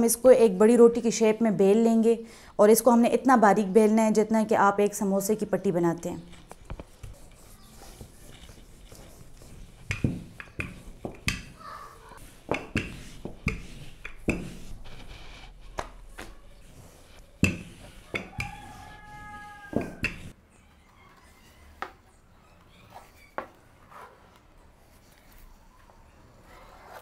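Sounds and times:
rolling pin rolling dough: 0:06.3 - 0:20.4
rolling pin knocks and taps: 0:09.7 - 0:11.6, 0:12.4 - 0:14.6, 0:17.4 - 0:18.9, 0:19.7 - 0:20.3.

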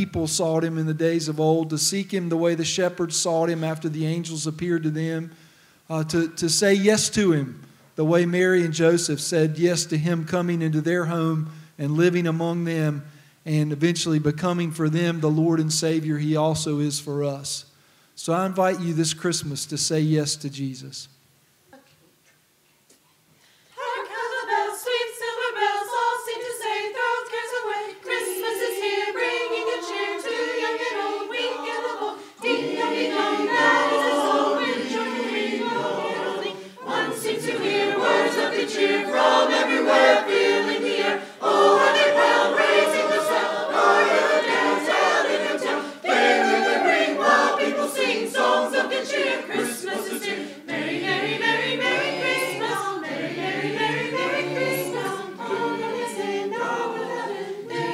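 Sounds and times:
mixed choir singing: 0:23.8 - 0:57.9.

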